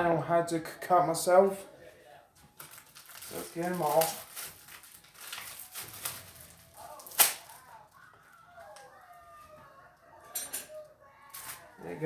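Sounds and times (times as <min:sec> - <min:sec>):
plastic wrapper crinkling: 0:02.5 - 0:08.9.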